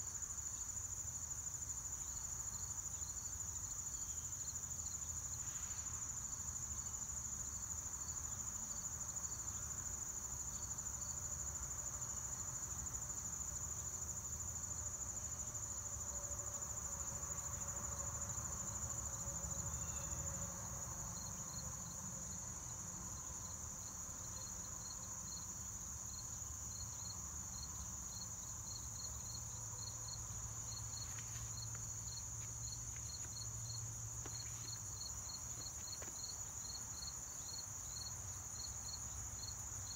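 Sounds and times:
insects droning: 0.0 - 39.9
insect chirping in pulses: 0.1 - 39.9.

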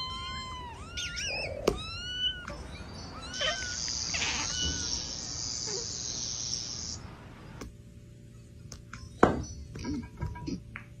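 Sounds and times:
cat meowing: 0.0 - 5.2
steady high hissing: 2.9 - 7.6.

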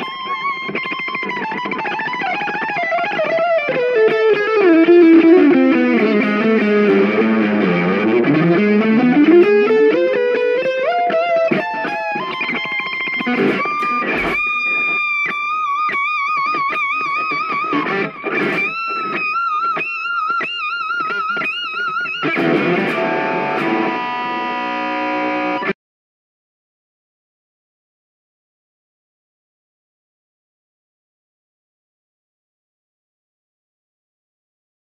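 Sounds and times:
electric guitar lead: 0.0 - 25.8.

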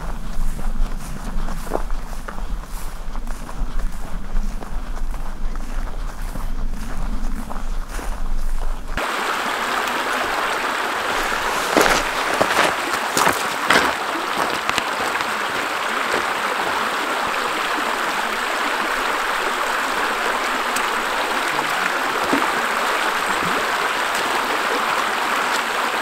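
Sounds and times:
creek flowing over rocks: 9.0 - 26.0.

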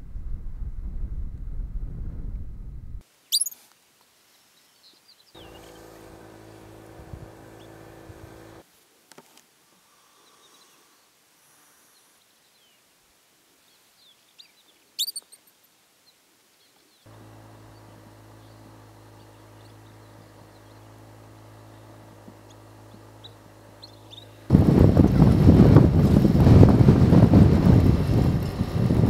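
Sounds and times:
pika squeaking: 3.3 - 3.6, 14.4 - 15.6, 23.2 - 24.4.

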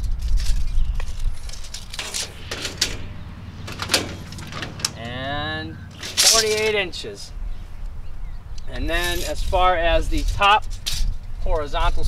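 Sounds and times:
tape measure rustles: 0.0 - 3.1, 6.0 - 6.8.

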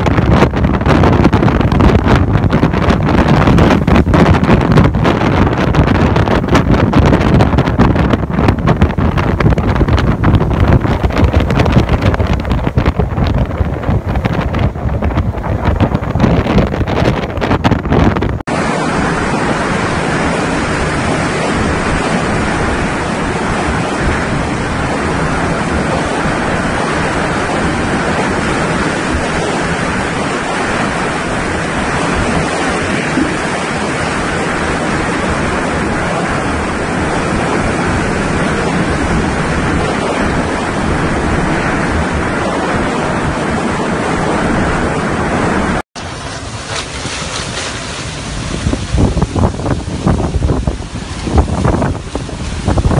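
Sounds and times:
hurricane wind rushing: 0.0 - 52.9
wind buffeting microphone: 0.0 - 52.9.

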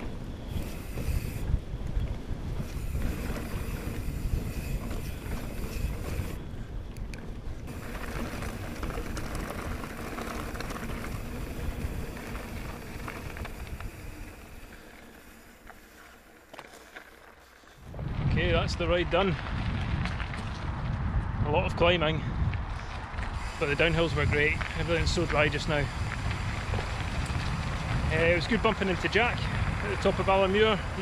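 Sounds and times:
wind buffeting microphone: 0.0 - 15.4, 17.8 - 31.0
bike tyres rumbling: 0.0 - 31.0.

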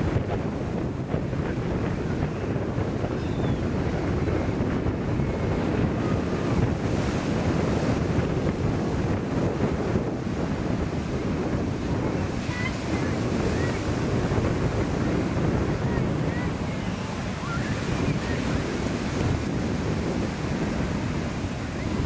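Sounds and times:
ocean surf breaking: 0.0 - 22.0
wind buffeting microphone: 0.0 - 22.0.

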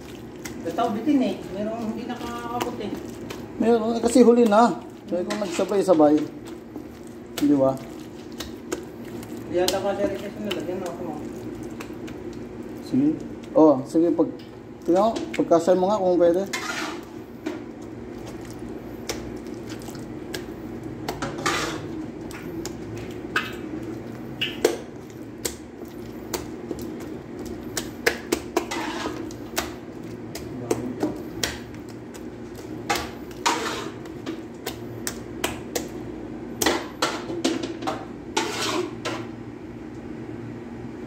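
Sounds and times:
chicken squelching in wet batter: 0.0 - 13.9, 17.7 - 36.1
steady background hum: 0.0 - 41.0.

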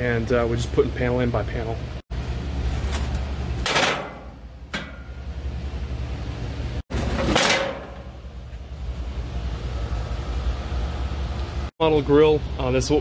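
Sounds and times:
metal grates clanking: 6.9 - 8.2.

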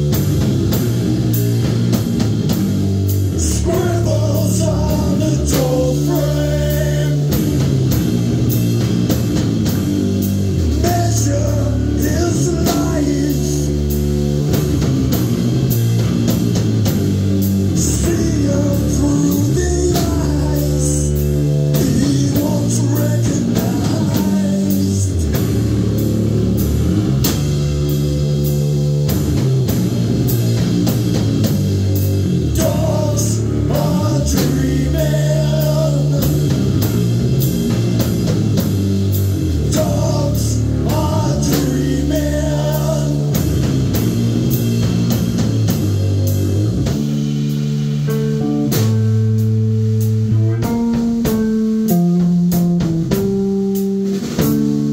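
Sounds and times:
drum kit beat: 0.0 - 54.9
electric bass guitar: 0.0 - 54.9
live rock band playing: 0.0 - 54.9
person singing: 3.4 - 7.6, 10.8 - 13.9, 17.8 - 25.5, 32.5 - 36.6, 39.6 - 43.7.

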